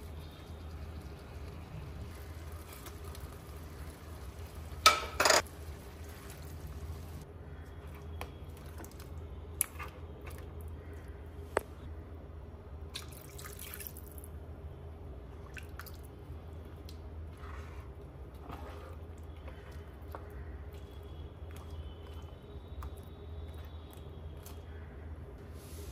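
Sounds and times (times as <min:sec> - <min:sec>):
spatula stirring in pot: 0:17.3 - 0:24.6.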